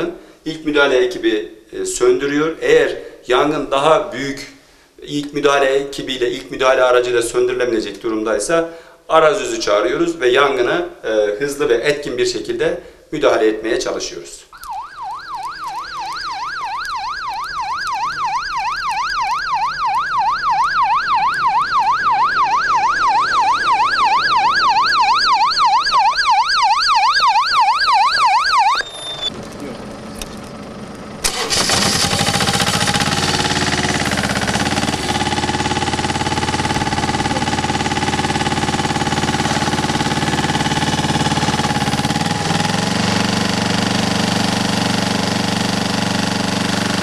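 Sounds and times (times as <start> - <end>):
emergency siren yelping: 14.5 - 29.4, 31.2 - 47.0
engine-driven pump running: 28.8 - 47.0.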